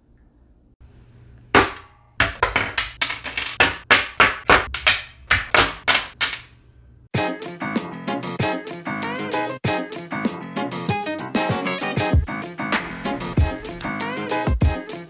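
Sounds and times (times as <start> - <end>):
parts knocking on wooden table: 1.6 - 6.4.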